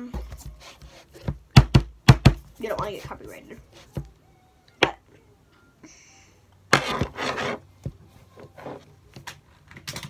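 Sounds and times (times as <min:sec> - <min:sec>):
rustling and rubbing of mouse cable: 0:00.2 - 0:01.3, 0:06.7 - 0:09.8.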